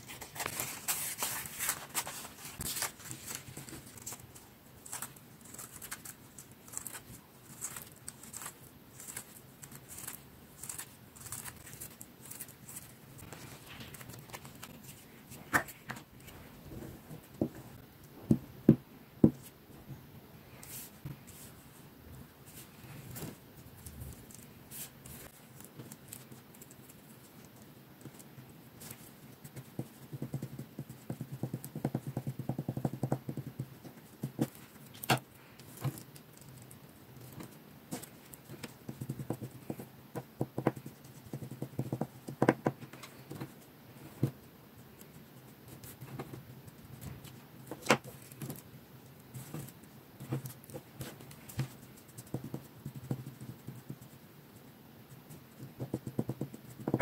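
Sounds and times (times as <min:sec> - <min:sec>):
scissor tips tapping on paper: 0:29.5 - 0:35.2, 0:37.9 - 0:43.5, 0:49.6 - 0:54.0, 0:55.6 - 0:57.0.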